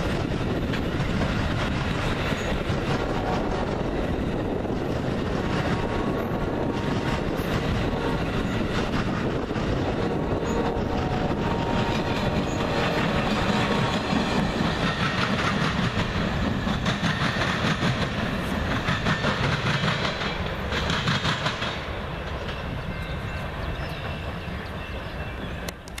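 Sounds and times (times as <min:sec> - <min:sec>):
train rumble: 0:00.0 - 0:26.0
train wheels clacking over rail joints: 0:00.0 - 0:26.0.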